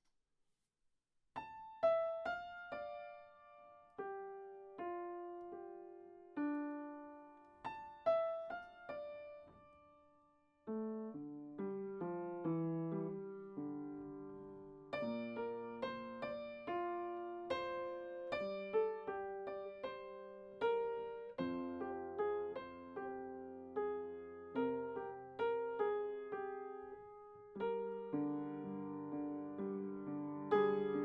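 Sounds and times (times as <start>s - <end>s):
slow solo piano: 1.4s - 31.0s.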